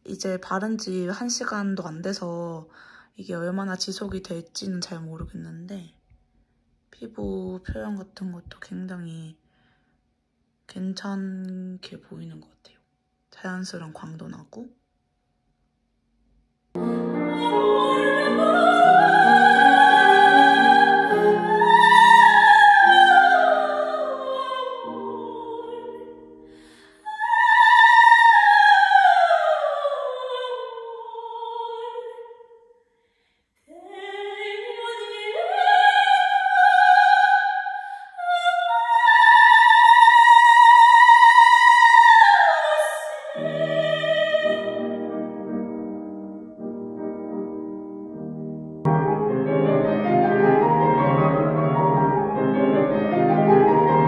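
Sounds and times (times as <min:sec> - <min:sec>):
piano chords: 0:16.8 - 0:29.6, 0:43.3 - 0:54.0
soprano singing opera: 0:16.8 - 0:32.6, 0:33.7 - 0:45.3.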